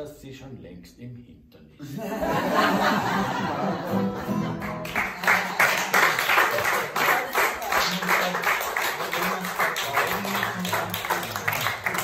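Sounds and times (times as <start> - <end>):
audience applauding: 3.3 - 12.0
acoustic guitar strumming: 3.6 - 5.0.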